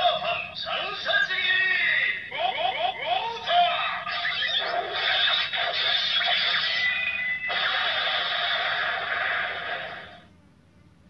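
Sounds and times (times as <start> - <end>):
electronic toy sound effects: 2.3 - 10.2
toy music: 6.0 - 7.5.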